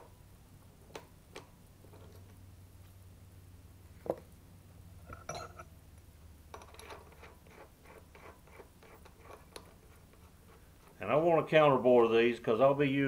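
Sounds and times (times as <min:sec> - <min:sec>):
metal tools clinking: 0:05.1 - 0:05.7.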